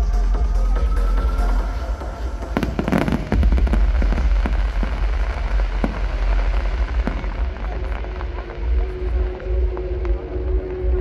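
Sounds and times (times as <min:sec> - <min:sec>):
deep rumble: 0:00.0 - 0:11.0
fireworks crackling and popping: 0:02.3 - 0:11.0
fireworks bursting: 0:02.4 - 0:11.0.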